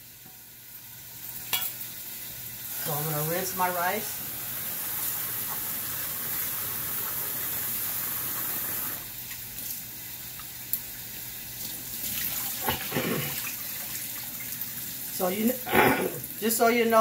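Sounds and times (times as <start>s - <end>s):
water poured into sink: 12.0s - 14.3s.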